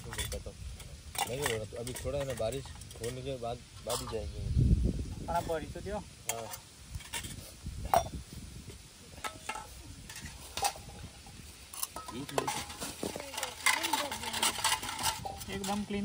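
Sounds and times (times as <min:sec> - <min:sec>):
metal dishes clinking: 0:01.1 - 0:04.2, 0:06.3 - 0:08.2, 0:09.2 - 0:16.0.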